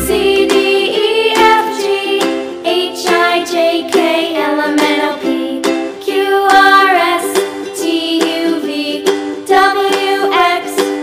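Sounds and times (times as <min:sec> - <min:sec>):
person singing: 0:00.0 - 0:05.5
plucked strings: 0:00.0 - 0:11.0.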